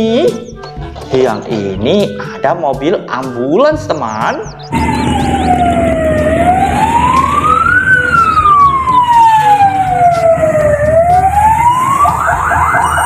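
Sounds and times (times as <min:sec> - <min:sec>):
ambulance siren wailing: 0:04.7 - 0:13.0.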